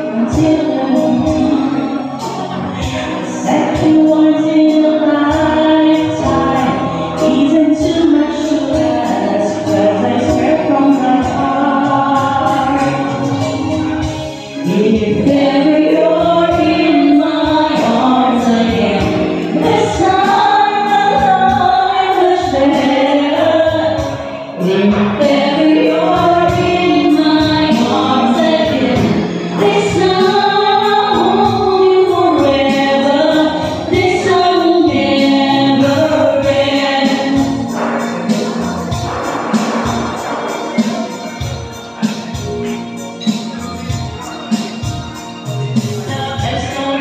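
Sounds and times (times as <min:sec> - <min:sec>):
women singing together: 0:00.0 - 0:41.4
electronic keyboard: 0:00.0 - 0:47.0.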